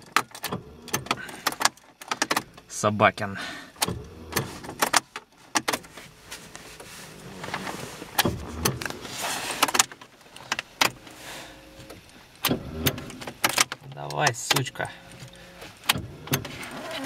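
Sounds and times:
starter motor cranking: 0:11.7 - 0:13.8.

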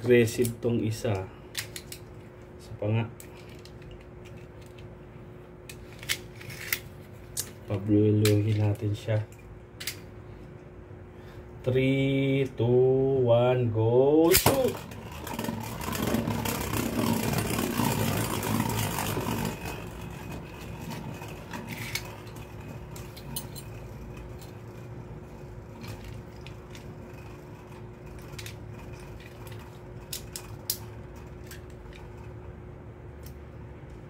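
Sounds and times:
spinning tops whirring and scraping: 0:14.3 - 0:32.6.

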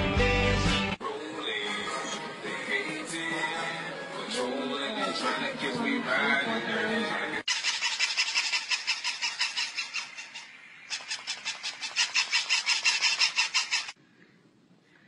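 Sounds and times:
toy puppies yapping: 0:07.5 - 0:14.0.

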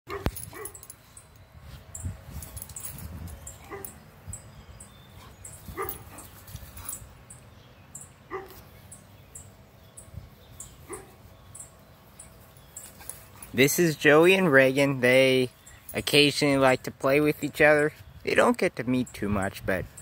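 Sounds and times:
dogs barking: 0:00.1 - 0:00.9, 0:03.5 - 0:04.1, 0:05.2 - 0:07.1, 0:08.2 - 0:08.7, 0:10.8 - 0:11.3.

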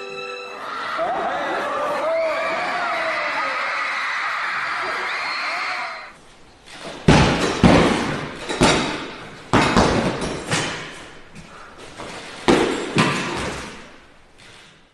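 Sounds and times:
kicks thudding on punching bag: 0:07.0 - 0:10.9.

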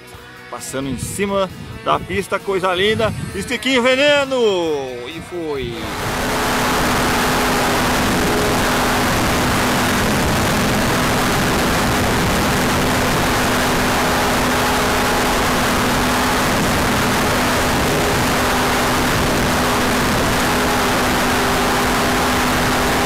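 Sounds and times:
model airplane engine and propeller: 0:00.0 - 0:23.0
wind rushing: 0:00.9 - 0:03.6, 0:05.3 - 0:20.8.

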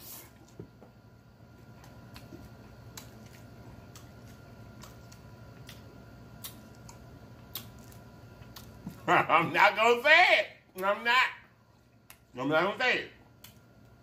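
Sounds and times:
low steady hum: 0:00.0 - 0:14.0
mouth chewing with lip smacks: 0:01.7 - 0:09.1.

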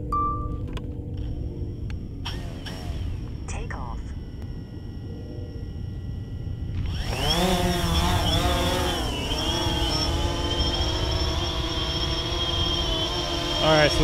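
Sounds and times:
drone motors buzzing whine: 0:00.0 - 0:14.0.

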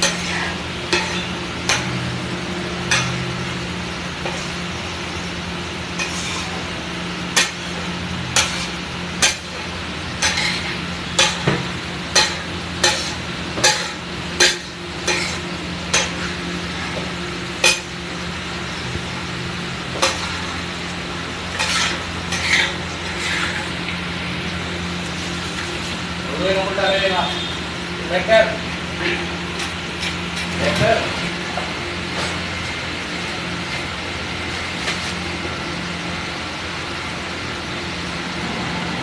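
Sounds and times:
metal spatula clinking on griddle: 0:00.0 - 0:02.0, 0:02.9 - 0:03.2, 0:10.2 - 0:11.5, 0:12.1 - 0:16.2.

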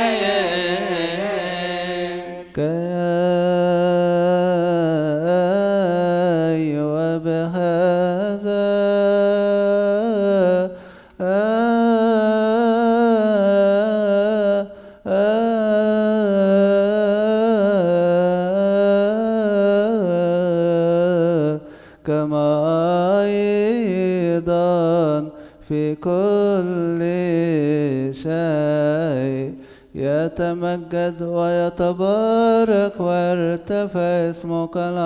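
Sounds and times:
man chanting a slow melody: 0:00.0 - 0:35.0.

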